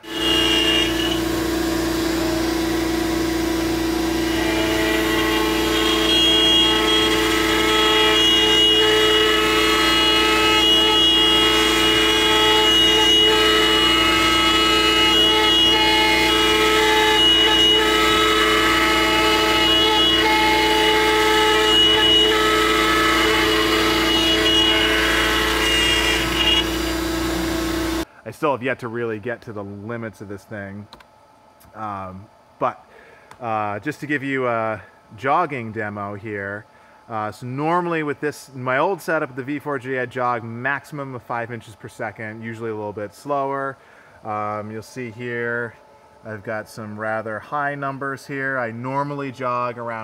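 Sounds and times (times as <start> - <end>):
cnc router whining: 0.0 - 28.0
higher whining tones: 0.0 - 28.0.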